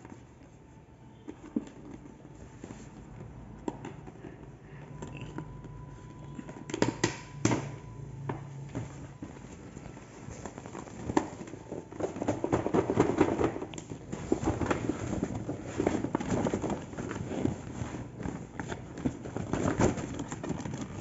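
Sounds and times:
paper bag rustling and crinkling: 8.7 - 21.0.

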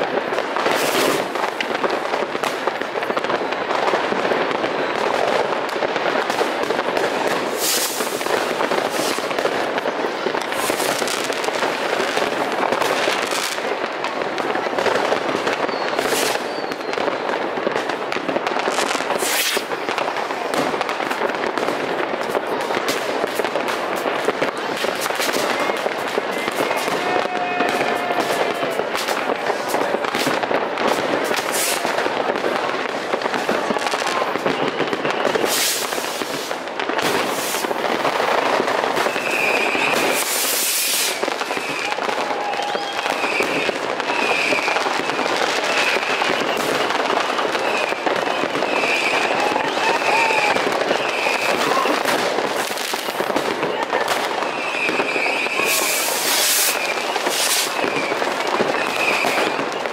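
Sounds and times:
fireworks bursting and crackling: 0.0 - 59.9
short high whistles: 15.7 - 16.9.

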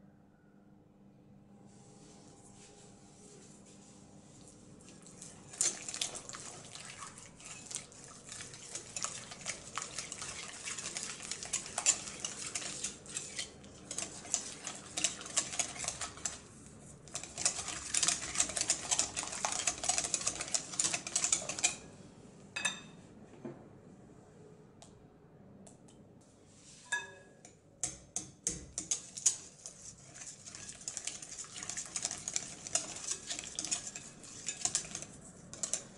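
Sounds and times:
whisk scraping a mixing bowl: 2.0 - 21.9, 28.5 - 35.9.

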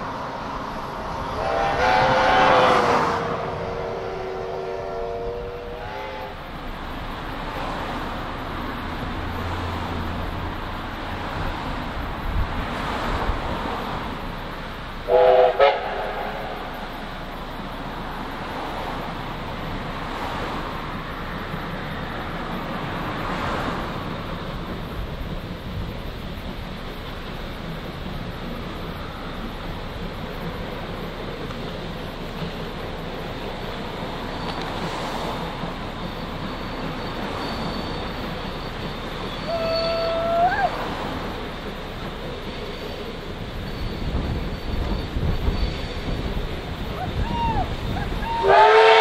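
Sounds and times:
steam train rumbling: 0.0 - 49.0
steam locomotive whistle: 1.2 - 6.5, 15.0 - 16.9, 36.5 - 41.2, 46.9 - 49.0.

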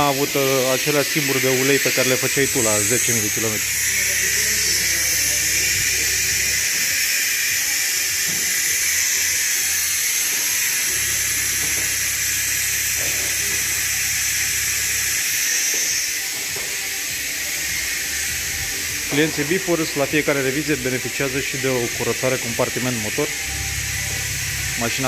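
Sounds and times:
compressed air hissing: 0.0 - 25.0
low hum: 2.1 - 6.8, 17.4 - 25.0.

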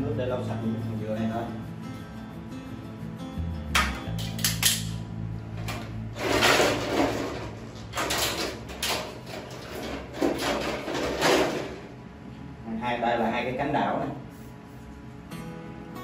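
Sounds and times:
plastic clattering and scraping: 5.7 - 11.8.

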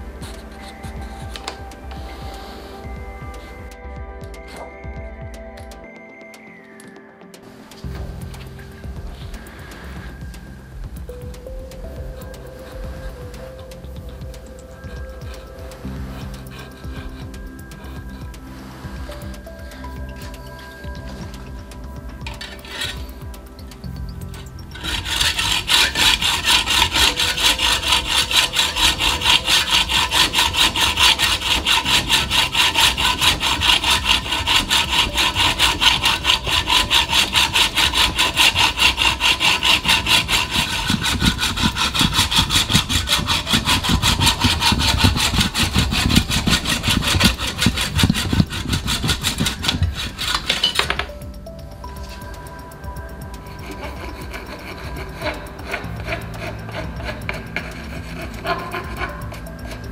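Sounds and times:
hacksaw cutting tube: 14.5 - 21.5, 22.3 - 23.1, 23.7 - 51.2, 53.5 - 59.9.

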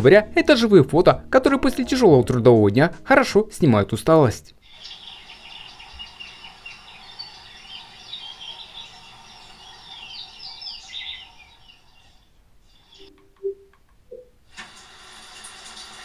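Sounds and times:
small birds chirping: 4.6 - 13.6.

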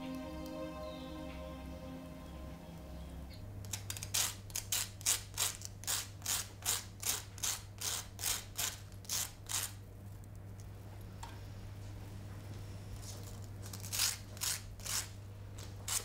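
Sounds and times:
low steady hum: 0.0 - 6.0, 9.8 - 16.0.

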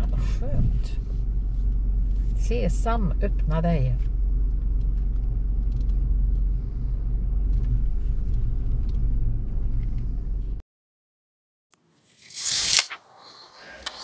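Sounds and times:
car cabin rumble: 0.0 - 10.6.

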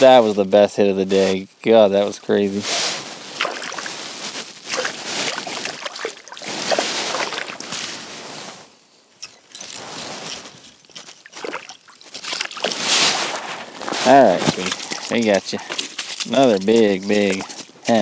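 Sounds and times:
fish splashing in water: 3.3 - 7.9, 11.2 - 13.8.

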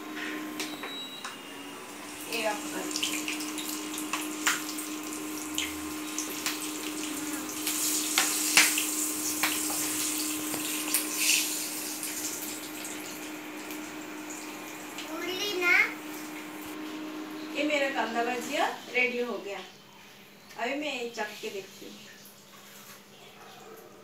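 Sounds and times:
cooktop humming: 0.0 - 24.0
chillies sizzling in hot oil: 2.0 - 19.6.

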